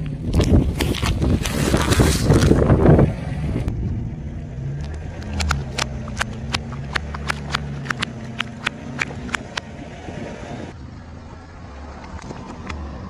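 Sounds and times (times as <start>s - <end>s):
car engine hum: 0.0s - 13.0s.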